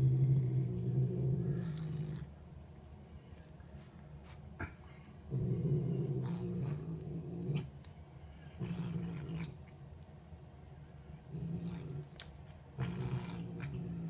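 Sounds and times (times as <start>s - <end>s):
cat growling low: 0.0s - 2.4s, 5.2s - 7.8s, 8.5s - 9.7s, 11.2s - 12.2s, 12.8s - 14.0s.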